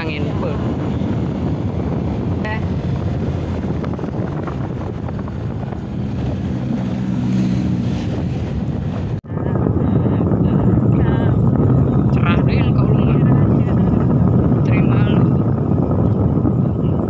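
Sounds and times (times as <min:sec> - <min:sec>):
pickup truck passing: 0:00.0 - 0:09.2
wind noise on microphone: 0:00.0 - 0:17.0.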